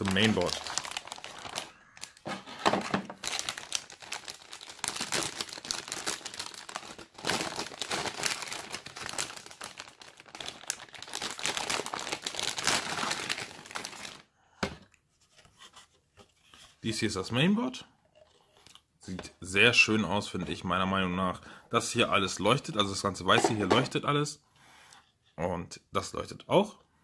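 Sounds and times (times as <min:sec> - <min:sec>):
plastic bag crinkling: 0:00.0 - 0:02.3, 0:03.1 - 0:14.2.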